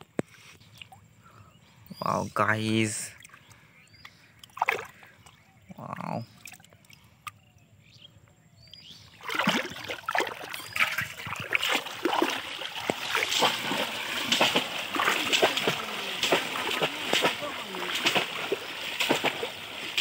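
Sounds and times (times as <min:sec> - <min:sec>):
water splashing: 0:04.3 - 0:07.4, 0:09.1 - 0:20.0.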